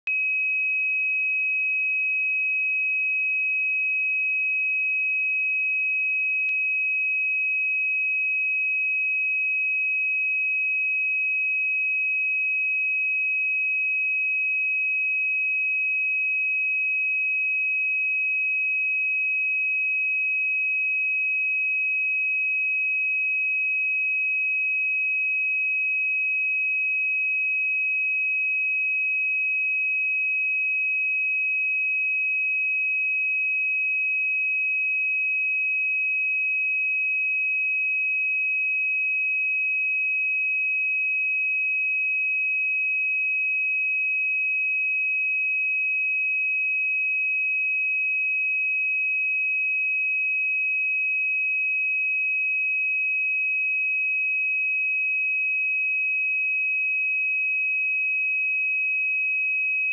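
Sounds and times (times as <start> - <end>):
sine wave test tone: 0.0 - 37.7, 54.5 - 59.9.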